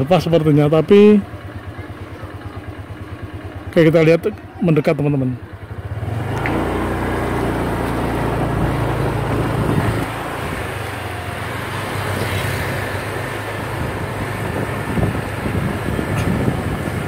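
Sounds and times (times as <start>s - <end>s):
scooter engines running: 0.0s - 17.0s
scooter passing by: 4.3s - 17.0s.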